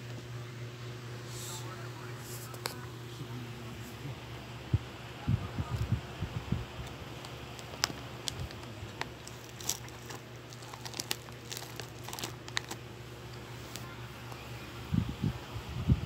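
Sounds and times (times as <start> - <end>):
plastic wrappers crinkling: 6.8 - 14.4.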